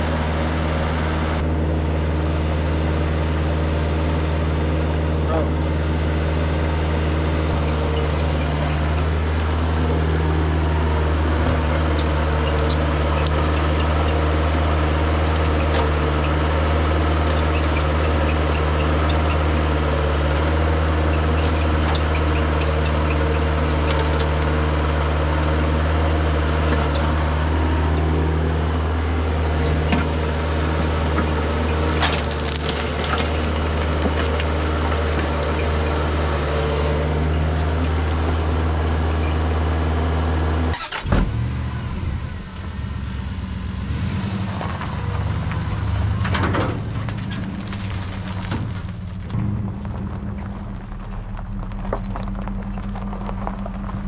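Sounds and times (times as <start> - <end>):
excavator diesel engine running: 0.0 - 54.0
branches crackling and snapping: 7.2 - 25.8, 29.3 - 39.6, 44.3 - 54.0
bucket crunching into brush: 31.8 - 35.4.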